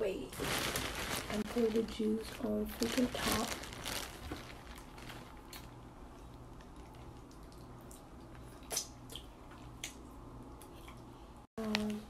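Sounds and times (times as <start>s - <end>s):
wet handling in plastic bag: 0.1s - 5.8s.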